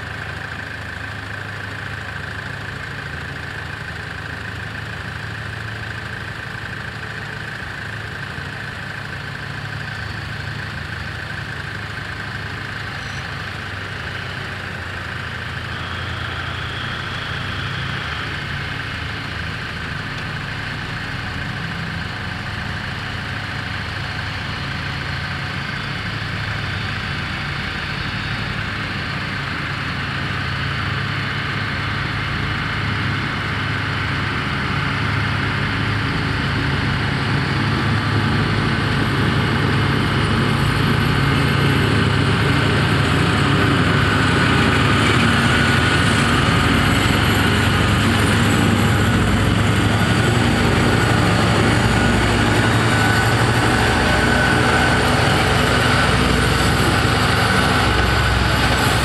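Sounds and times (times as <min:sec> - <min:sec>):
diesel locomotive engine drone: 0:00.0 - 0:59.0.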